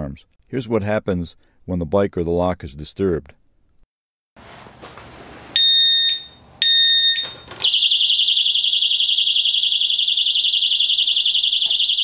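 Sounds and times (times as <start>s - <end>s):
alarm siren warbling: 7.6s - 12.0s.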